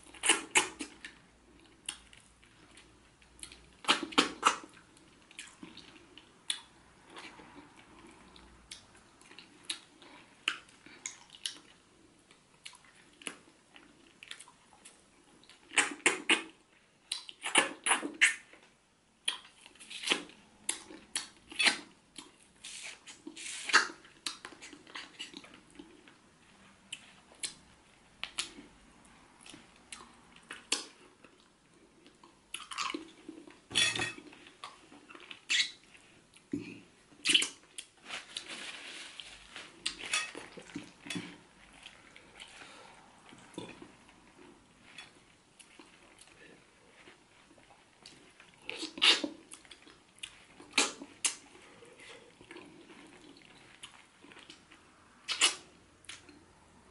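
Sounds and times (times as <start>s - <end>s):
eating smacks and clicks: 14.2s - 18.5s, 52.4s - 56.4s
wet chewing: 34.2s - 56.4s.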